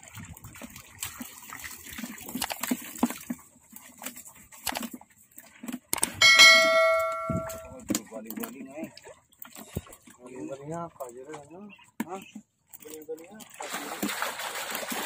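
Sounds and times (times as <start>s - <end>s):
splashes of wading in water: 0.0s - 15.0s
notification bell ding: 6.2s - 7.7s.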